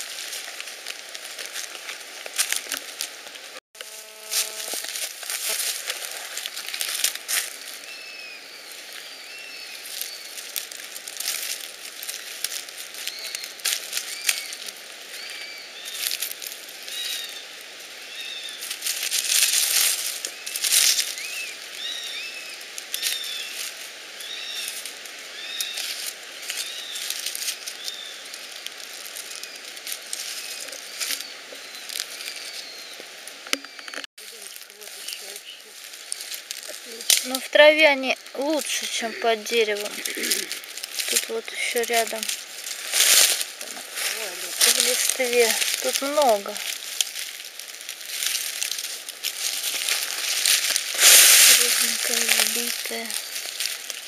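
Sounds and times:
dry leaves crackling underfoot: 0:00.0 - 0:54.0
bird chirping: 0:07.8 - 0:10.4, 0:20.3 - 0:23.6.

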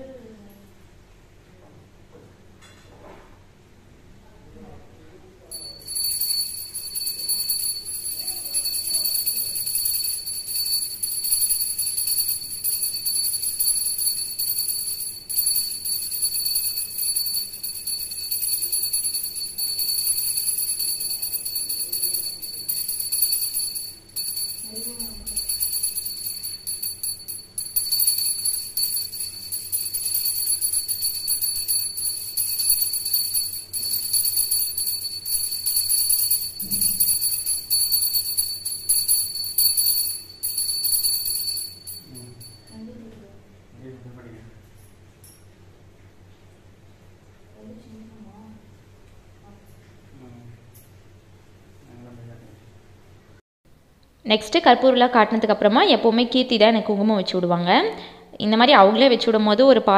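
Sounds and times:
hand bell ringing: 0:05.5 - 0:42.9.

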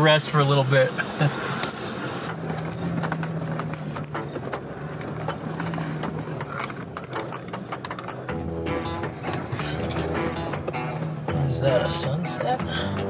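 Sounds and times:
diesel engine droning: 0:00.0 - 0:13.0
truck rattling over rocks: 0:00.0 - 0:13.0
music: 0:07.9 - 0:13.0.

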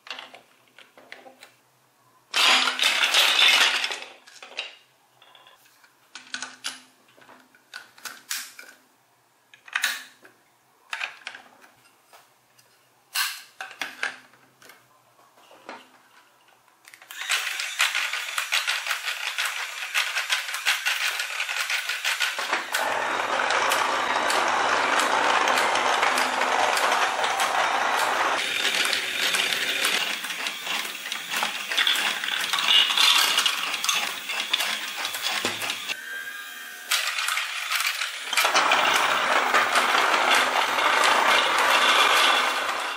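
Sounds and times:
plastic blocks clicking: 0:02.4 - 0:05.5, 0:16.9 - 0:36.0, 0:37.0 - 0:42.9.

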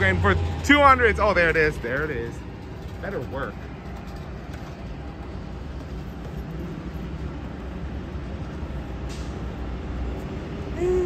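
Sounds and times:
city street rumble: 0:00.0 - 0:11.0.

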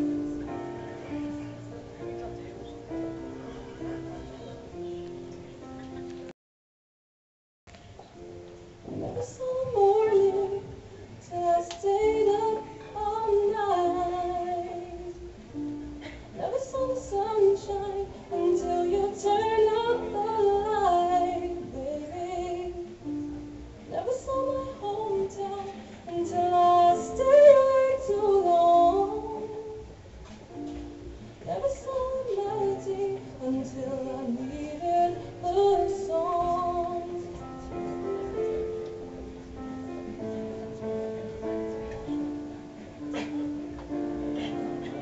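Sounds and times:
keyboard sustained chords: 0:00.0 - 0:06.3, 0:08.0 - 0:45.0
woman singing slow melody: 0:09.0 - 0:30.0, 0:31.4 - 0:37.9.

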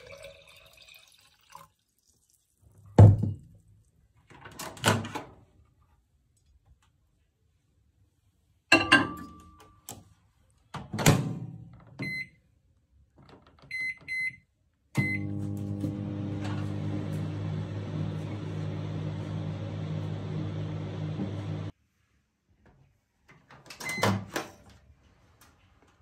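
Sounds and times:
keypad beeps: 0:13.7 - 0:14.4, 0:15.0 - 0:15.3
microwave hum and fan hiss: 0:15.0 - 0:21.7.

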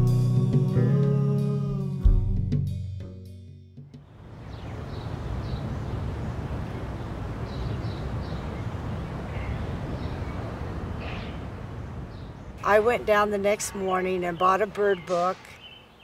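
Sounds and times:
distant city traffic hum: 0:04.0 - 0:16.0
high bird chirps: 0:14.3 - 0:16.0.

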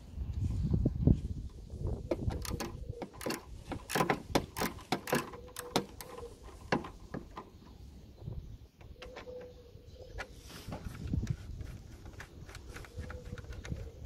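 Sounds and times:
hand ratchet clicking: 0:02.3 - 0:06.2.

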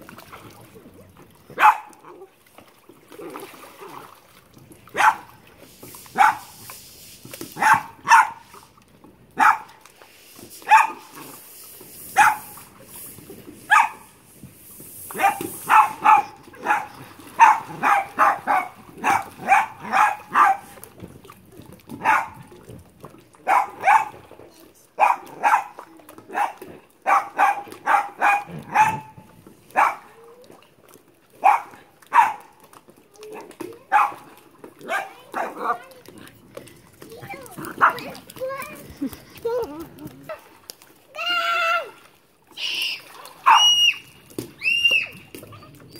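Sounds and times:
dog barking sharply: 0:06.2 - 0:06.5, 0:07.6 - 0:08.4, 0:09.4 - 0:09.7, 0:10.7 - 0:11.0, 0:12.2 - 0:12.5, 0:13.7 - 0:14.0, 0:15.2 - 0:20.6, 0:26.4 - 0:29.1.

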